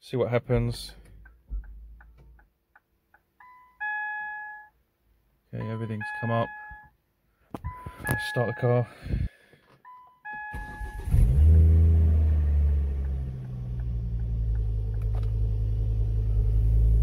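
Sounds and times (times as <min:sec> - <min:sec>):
short electronic beeps: 0:03.4 - 0:04.7, 0:05.6 - 0:06.9, 0:07.7 - 0:08.8, 0:09.9 - 0:11.0
car engine starting and idling: 0:10.2 - 0:17.0.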